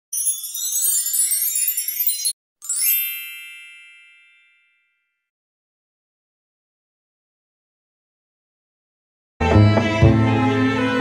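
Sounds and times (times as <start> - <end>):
high tinkling chimes shimmer: 0.0 - 5.0.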